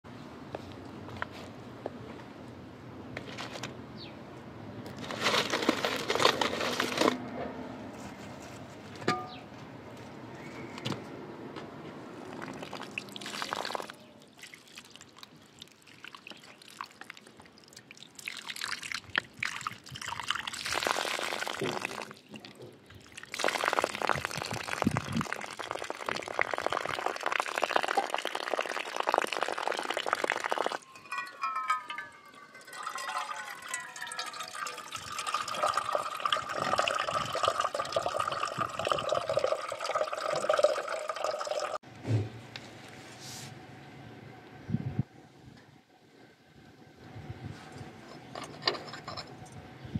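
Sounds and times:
water splashing on ground: 12.2 - 22.3, 23.1 - 34.6
water pouring into pot: 12.4 - 15.1, 18.1 - 22.2, 23.0 - 41.8.

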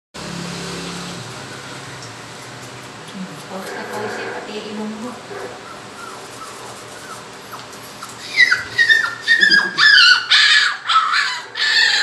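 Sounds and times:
puppies whining and yelping: 5.5 - 12.0.

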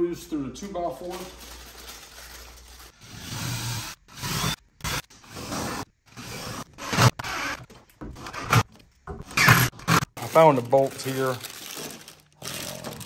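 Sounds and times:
drill boring into wood: 3.0 - 7.6.

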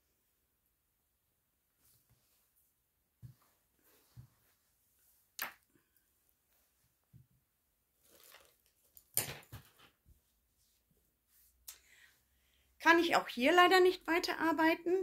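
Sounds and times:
soft rustle: 1.7 - 7.3, 7.9 - 9.0, 9.9 - 12.4.

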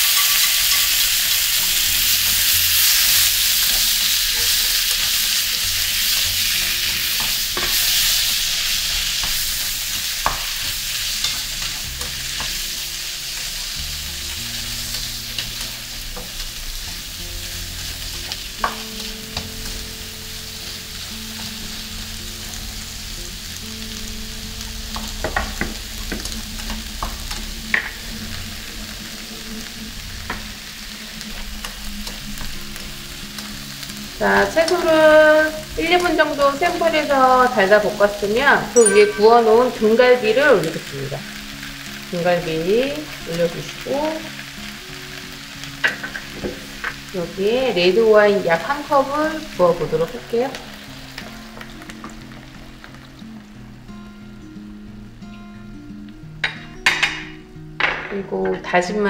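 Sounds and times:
chopsticks tapping a pan: 0.0 - 19.9, 24.9 - 28.2, 38.8 - 40.8, 45.7 - 47.1, 56.4 - 58.6
vegetables sizzling in a frying pan: 0.0 - 59.0.

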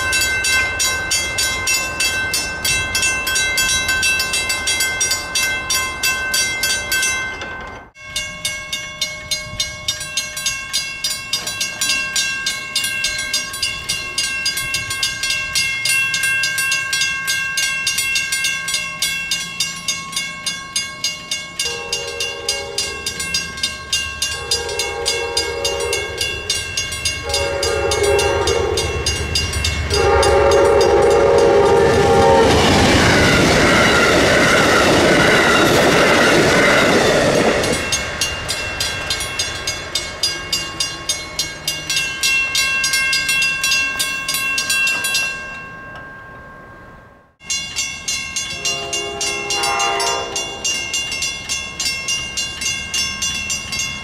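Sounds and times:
railroad crossing bell ringing: 0.0 - 54.0
train passing with loud rush: 0.0 - 54.0
locomotive horn blasts: 21.6 - 23.1, 24.3 - 26.5, 27.2 - 29.2, 29.9 - 32.6, 48.5 - 50.8.

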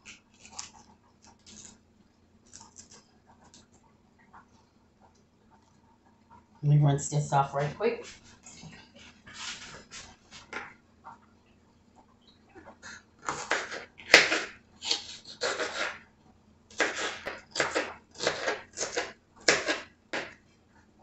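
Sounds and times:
knife slicing on plastic cutting board: 9.0 - 10.7, 13.2 - 16.0, 16.7 - 20.3.

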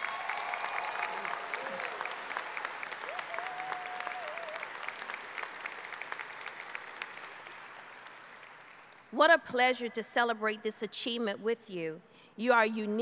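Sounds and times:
audience applauding: 0.0 - 9.0
long held whoop: 3.0 - 4.8.

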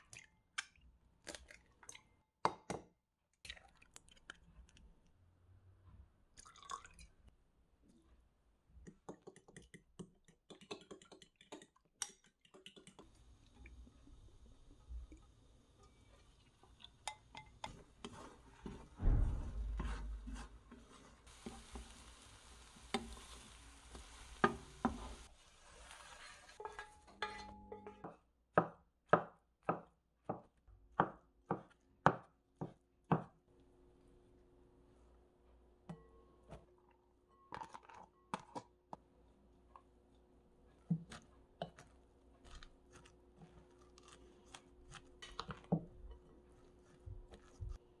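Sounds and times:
egg sizzling in a pan: 20.7 - 26.6.

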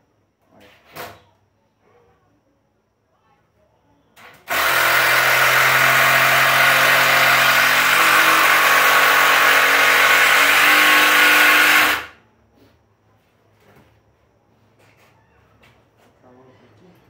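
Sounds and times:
cordless drill driving screw into wood: 4.5 - 12.2.

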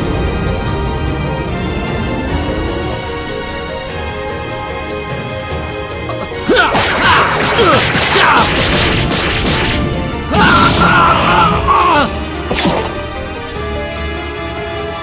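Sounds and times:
dramatic background music: 0.0 - 15.0
cartoon punches and smashes: 6.5 - 11.2.

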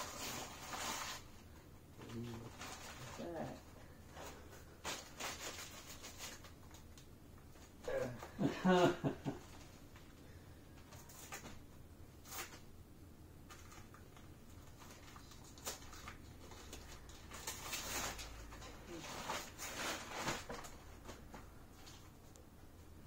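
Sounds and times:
wrapping paper rustling and tearing: 0.0 - 8.1, 12.2 - 12.6, 13.5 - 22.1.

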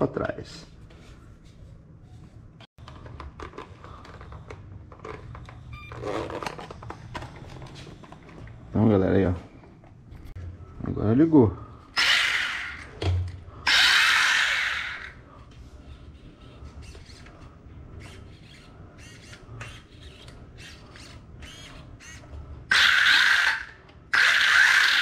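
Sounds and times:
rc car motor whirring: 12.0 - 12.9, 13.7 - 15.2, 18.0 - 25.0.

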